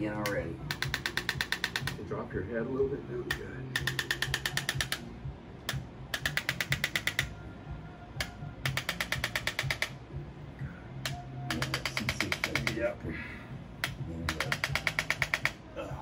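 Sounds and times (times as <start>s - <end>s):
electric adjusting instrument clicking: 0.2s - 2.0s, 3.3s - 7.4s, 8.2s - 10.0s, 11.0s - 12.9s, 13.8s - 15.6s.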